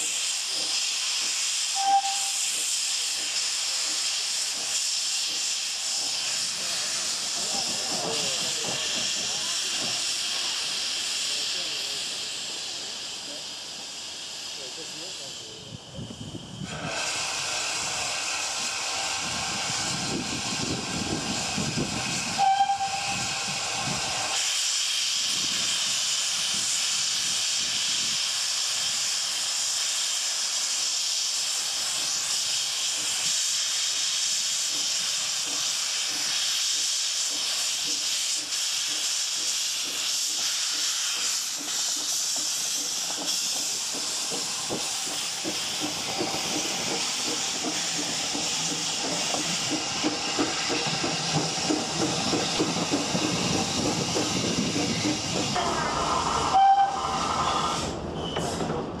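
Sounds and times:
steam hissing: 0.0 - 59.0
steam whistle: 1.7 - 2.5, 22.3 - 23.6, 56.1 - 57.9.

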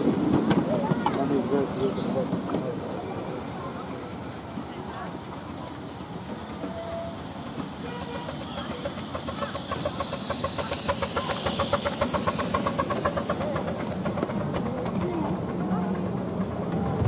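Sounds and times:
steam hiss: 0.0 - 16.8
miniature steam train beat: 0.0 - 17.0.

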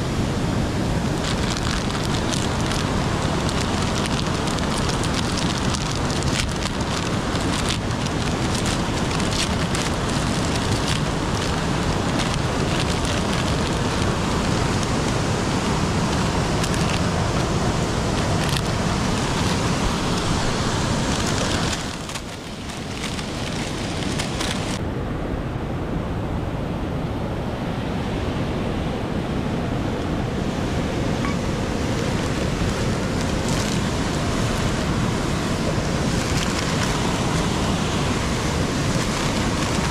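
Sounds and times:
stream rushing: 0.0 - 39.9
plastic packet crinkling: 1.2 - 24.8, 31.3 - 35.0, 35.8 - 37.8, 38.5 - 39.9.

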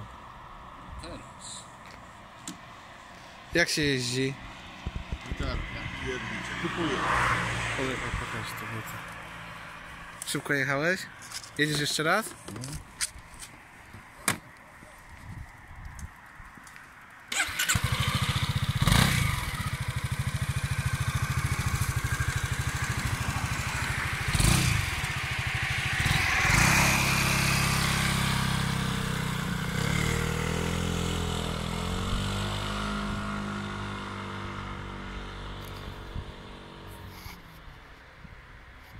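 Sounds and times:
scooter engine starting and idling: 17.3 - 31.1
scooter engine revving: 17.3 - 37.0.

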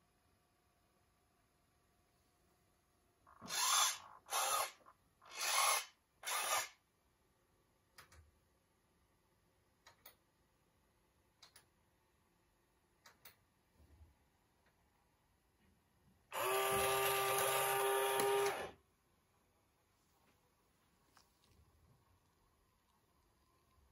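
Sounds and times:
toy car electric motor whirring: 3.4 - 6.8, 16.4 - 18.8.

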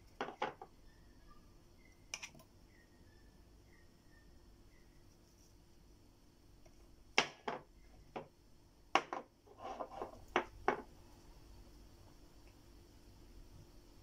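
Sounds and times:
scratchy noise: 9.5 - 10.2.

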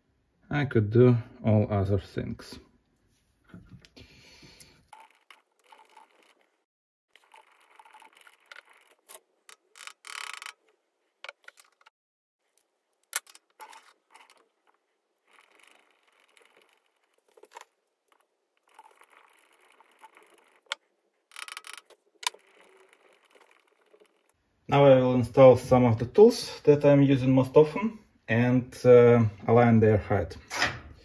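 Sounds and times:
metal parts clicking and tapping: 7.2 - 11.9, 13.0 - 24.4.

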